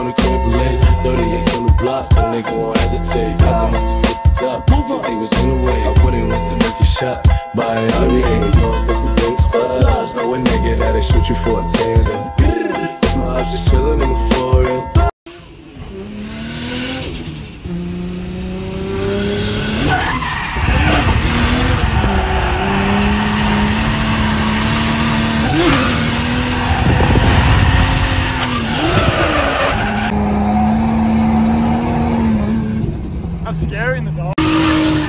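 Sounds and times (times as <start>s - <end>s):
car engine running hard: 15.3s - 35.0s
tyres screeching: 19.0s - 32.6s.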